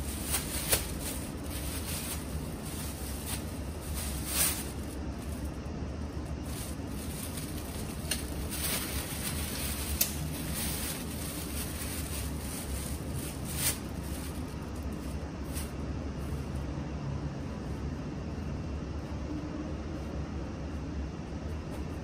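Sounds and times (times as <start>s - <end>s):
plastic bag crinkling: 0.0s - 5.6s, 6.3s - 15.8s
low background rumble: 0.0s - 22.0s.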